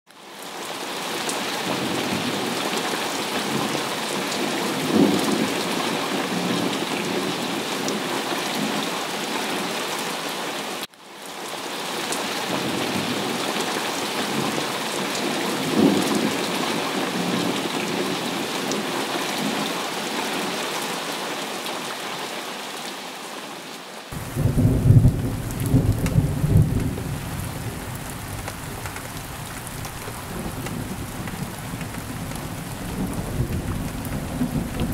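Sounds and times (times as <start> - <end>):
heavy rain falling: 0.1 - 34.9
thunder rumbling: 24.2 - 34.9.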